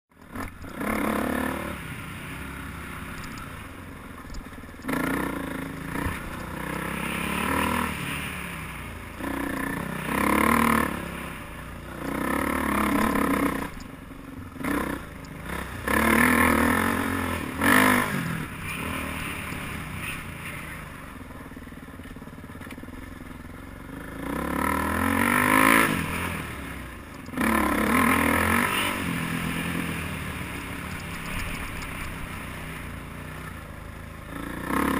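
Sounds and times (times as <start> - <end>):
dirt bike engine revving: 0.2 - 3.8, 4.5 - 21.6, 23.8 - 33.6, 34.2 - 34.9
bike scraping and clattering: 30.6 - 32.4.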